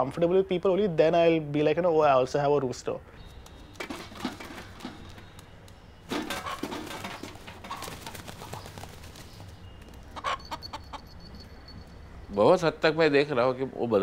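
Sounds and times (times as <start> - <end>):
knocks and clatter: 3.5 - 5.4, 6.1 - 8.9.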